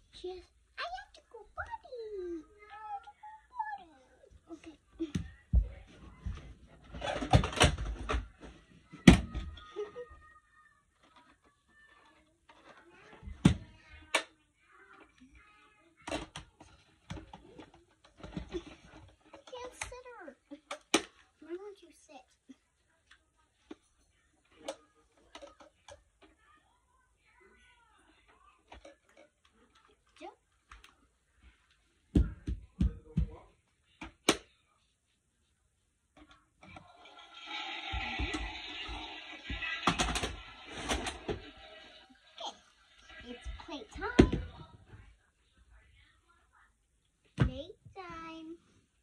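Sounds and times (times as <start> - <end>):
knocks and taps of toys: 32.1 - 34.4
plastic toys clunking: 36.7 - 41.8.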